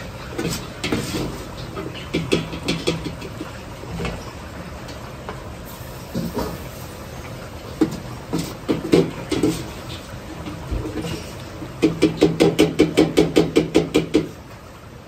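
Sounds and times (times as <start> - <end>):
food deep-frying in oil: 0.0 - 15.0.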